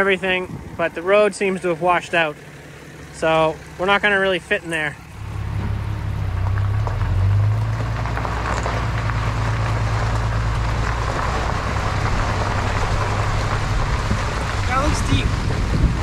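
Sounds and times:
tyres rolling over gravel: 0.0s - 16.0s
low engine drone: 2.4s - 16.0s.

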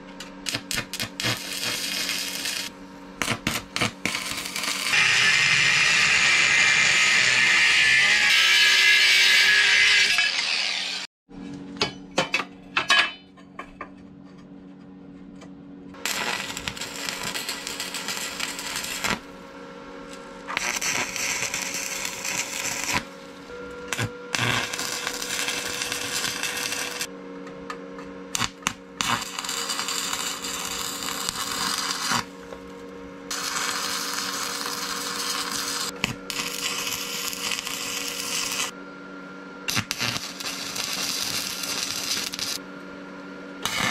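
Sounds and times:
steady low hum: 0.0s - 8.1s, 11.3s - 43.9s
welding arc crackling and hissing: 0.4s - 11.1s, 16.0s - 19.4s, 20.1s - 27.1s, 28.3s - 32.4s, 33.3s - 38.7s, 39.7s - 42.6s, 43.6s - 43.9s.

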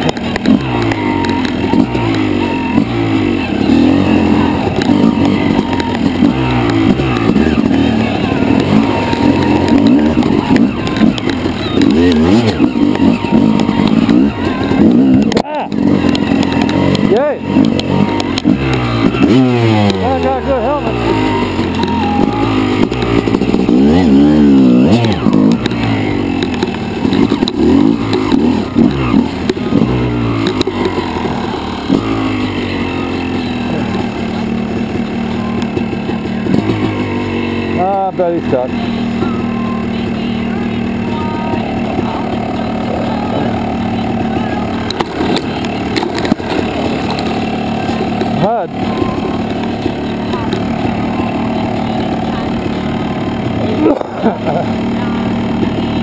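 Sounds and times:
dirt bike engine revving: 0.0s - 56.0s
sharp clicks: 8.5s - 20.1s.

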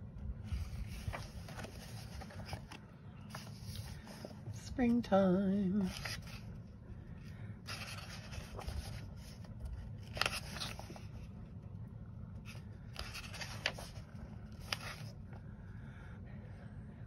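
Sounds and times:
low steady hum: 0.0s - 17.0s
paper pages turning: 0.5s - 5.0s, 5.7s - 6.6s, 7.6s - 11.3s, 12.4s - 15.4s.

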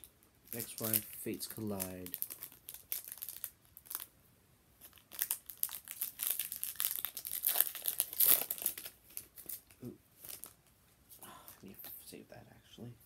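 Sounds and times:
foil pack crinkling and tearing: 0.5s - 4.1s, 4.8s - 10.6s.

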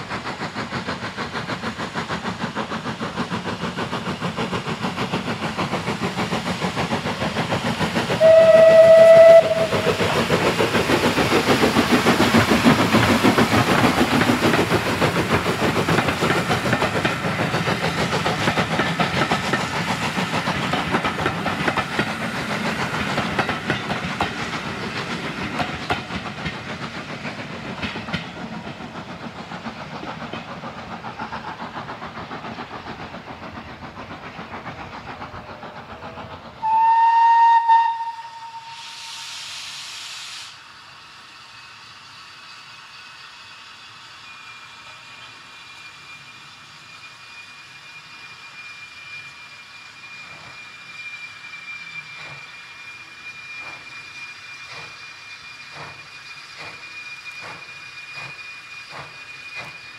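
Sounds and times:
steam locomotive exhaust beats: 0.0s - 59.9s
steam whistle blast: 8.2s - 10.2s, 36.6s - 40.6s.

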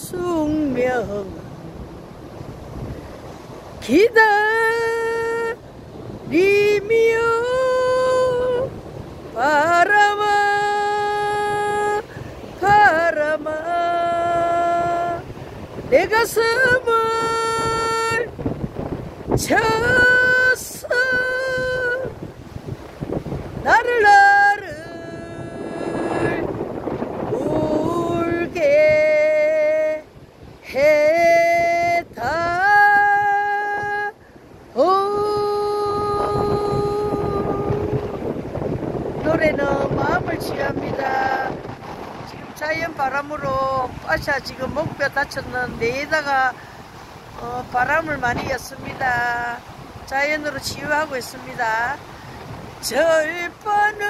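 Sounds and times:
woman singing long notes: 0.0s - 2.2s, 3.8s - 5.6s, 6.2s - 18.4s, 19.3s - 22.3s, 23.6s - 26.6s, 27.2s - 38.4s, 39.2s - 41.8s, 52.8s - 54.0s.

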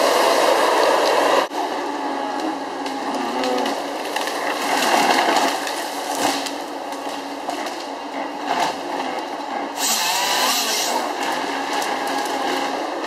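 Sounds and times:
engine and hydraulics droning: 0.0s - 13.0s
harvester head scraping and cracking: 3.4s - 12.8s.

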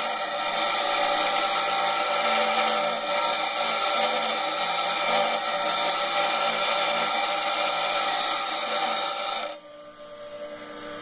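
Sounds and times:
bench grinder grinding metal: 0.0s - 9.6s
steady hum: 3.6s - 11.0s.

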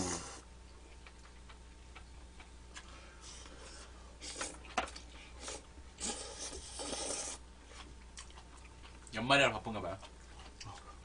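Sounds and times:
slurping noodles: 5.4s - 7.4s.

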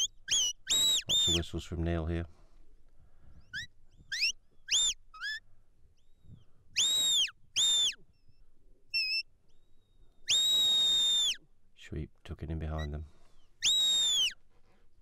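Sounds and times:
shepherd's whistle commands: 0.0s - 1.6s, 3.5s - 5.4s, 6.8s - 8.0s, 8.9s - 9.3s, 10.3s - 11.4s, 13.6s - 14.4s.

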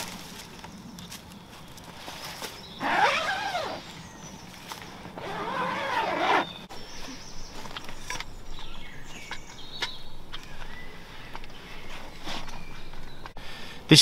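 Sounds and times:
zip being pulled: 2.8s - 3.9s, 5.2s - 6.6s.

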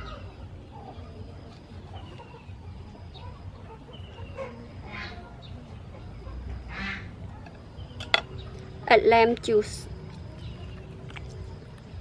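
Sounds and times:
chickens clucking: 0.0s - 8.8s.

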